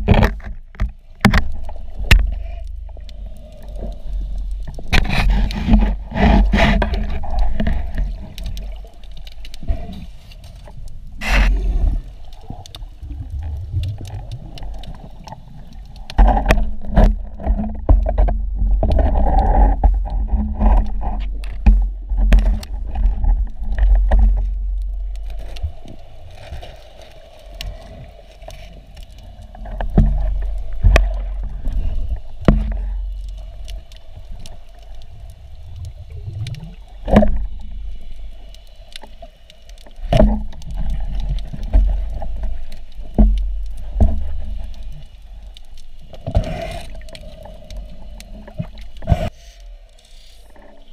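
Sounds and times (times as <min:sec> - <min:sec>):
underwater rush of water: 0:00.0 - 0:50.9.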